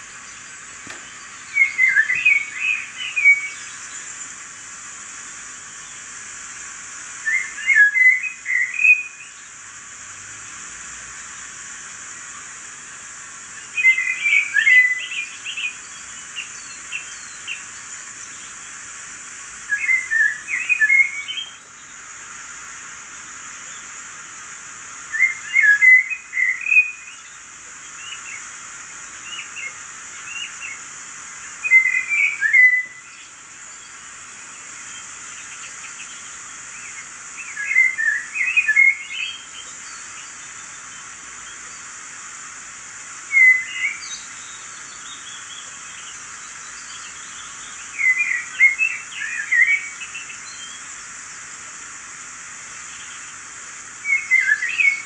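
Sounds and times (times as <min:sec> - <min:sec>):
birds chirping and trilling: 0:00.0 - 0:06.3, 0:07.2 - 0:09.6, 0:13.3 - 0:51.4, 0:52.3 - 0:55.0.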